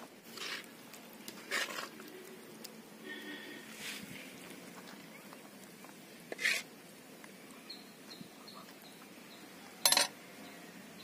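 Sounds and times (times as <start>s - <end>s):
bird chirping: 7.4s - 11.0s.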